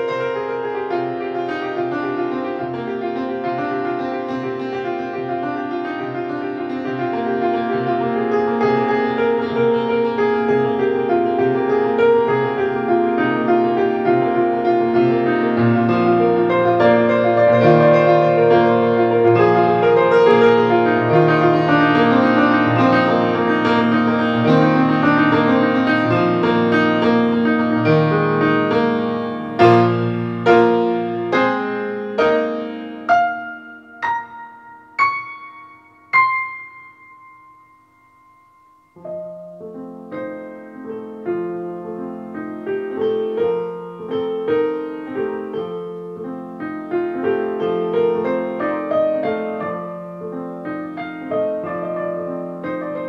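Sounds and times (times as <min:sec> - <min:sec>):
solo piano improvisation: 0:00.0 - 0:53.0.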